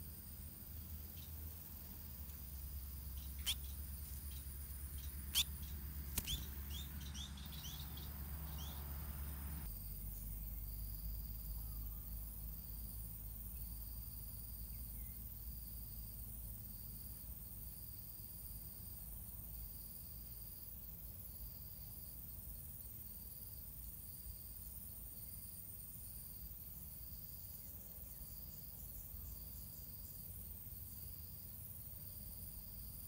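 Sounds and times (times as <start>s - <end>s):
faint low hum: 0.0s - 19.9s
birds chirping: 0.8s - 9.7s.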